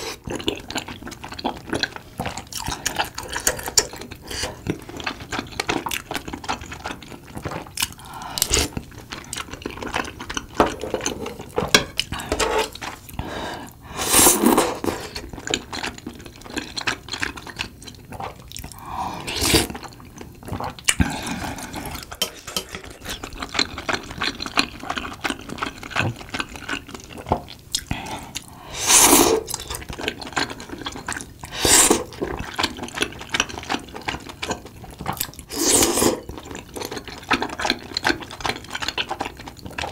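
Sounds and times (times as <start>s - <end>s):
wet chewing: 0.0s - 13.5s, 19.4s - 28.6s
slurping broth: 2.6s - 5.4s, 10.7s - 15.7s, 18.2s - 19.9s, 28.1s - 29.9s, 30.5s - 32.6s, 35.4s - 37.8s.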